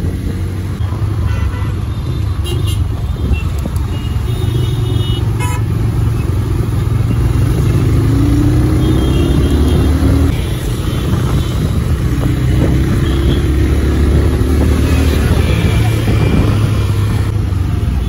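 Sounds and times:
wind rumble on microphone: 0:00.0 - 0:00.8, 0:08.4 - 0:18.0
motorcycle engine: 0:00.0 - 0:18.0.

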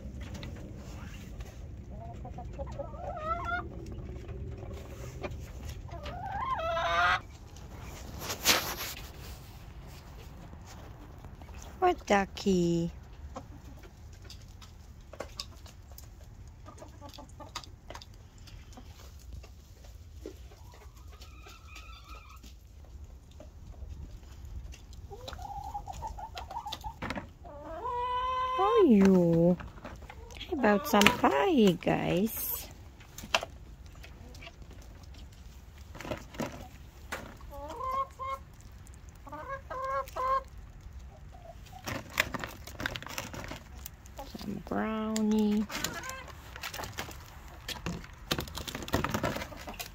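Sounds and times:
low steady rumble: 0:00.0 - 0:08.4
hens clucking: 0:00.0 - 0:49.9
rustling: 0:07.2 - 0:11.8.

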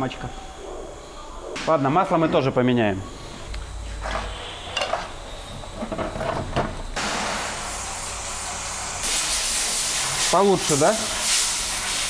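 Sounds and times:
aerosol spray hissing: 0:07.0 - 0:12.0.

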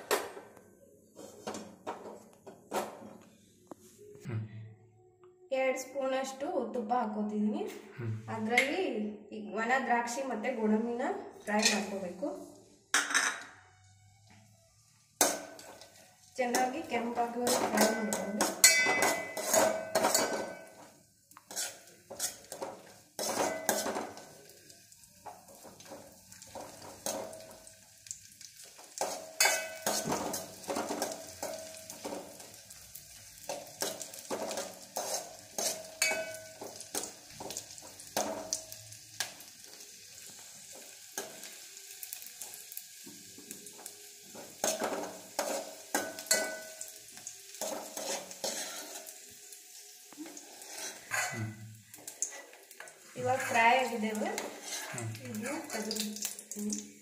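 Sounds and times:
nuts frying with faint sizzle: 0:14.2 - 0:57.0
steel spoon scraping a pot: 0:17.4 - 0:20.8, 0:21.4 - 0:24.2, 0:29.0 - 0:32.2, 0:33.4 - 0:38.3, 0:44.6 - 0:46.8, 0:47.5 - 0:49.2, 0:50.4 - 0:51.6, 0:54.3 - 0:55.1.

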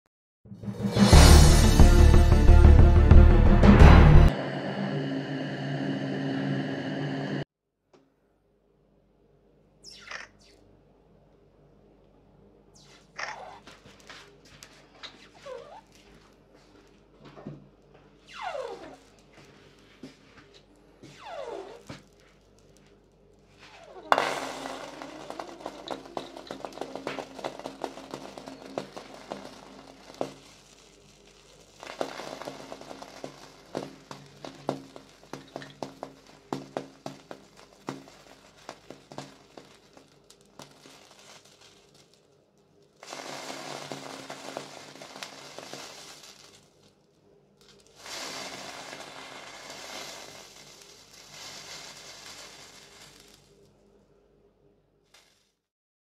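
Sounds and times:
hot blade sizzling and crackling: 0:23.7 - 0:42.2, 0:43.0 - 0:46.9, 0:47.6 - 0:53.5, 0:55.1 - 0:55.5.

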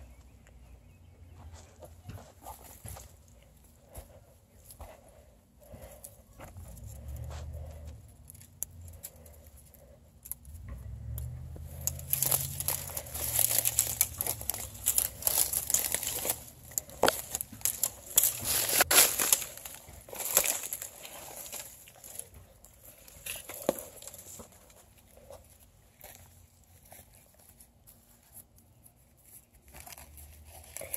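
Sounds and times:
twigs and leaves crackling: 0:01.4 - 0:30.9
twigs snapping: 0:08.2 - 0:27.2.

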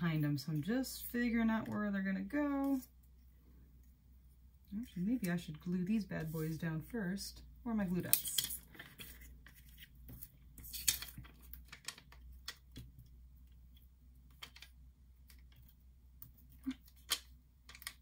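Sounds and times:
paper pieces tapping and clicking: 0:08.1 - 0:13.0.

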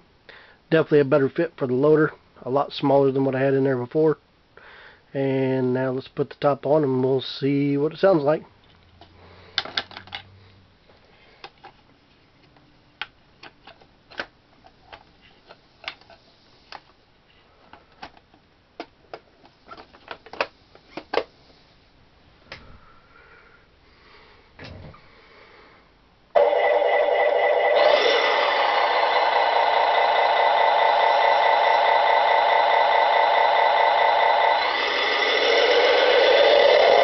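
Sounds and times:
plastic parts clicking and knocking: 0:09.0 - 0:10.3, 0:12.4 - 0:16.9, 0:17.7 - 0:21.3
engine sound from small speaker: 0:26.4 - 0:37.0.

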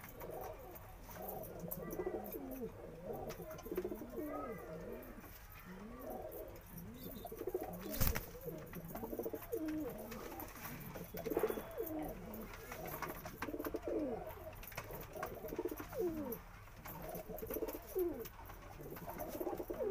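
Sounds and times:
pigeons cooing: 0:00.0 - 0:19.9
pigeon bow-coo call: 0:00.1 - 0:16.4.

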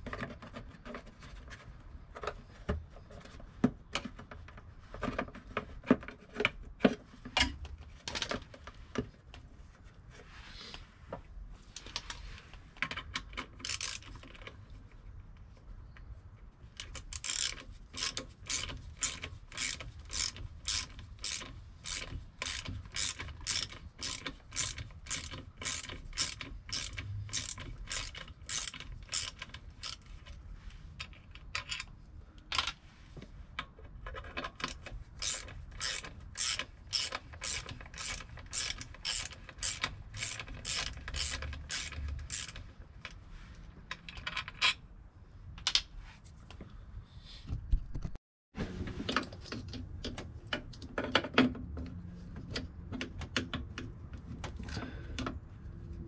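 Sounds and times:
hand ratchet clicking: 0:13.5 - 0:14.4, 0:16.8 - 0:30.1, 0:34.7 - 0:42.7.

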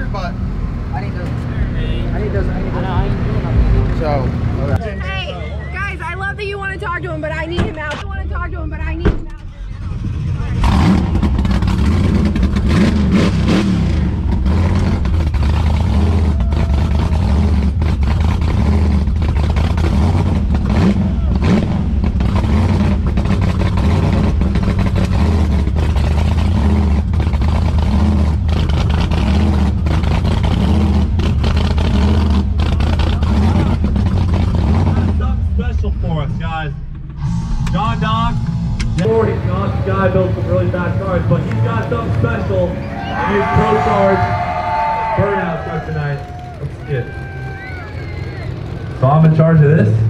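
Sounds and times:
truck engine idling choppily: 0:00.0 - 0:50.0.

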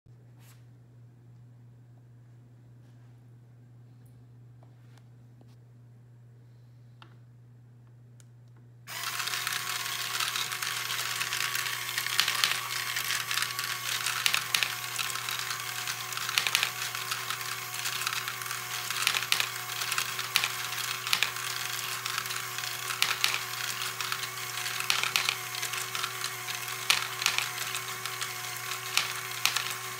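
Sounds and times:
plastic gears clicking: 0:08.9 - 0:29.9
small electric motor whirring: 0:08.9 - 0:29.9
plastic balls rattling: 0:10.1 - 0:28.2.

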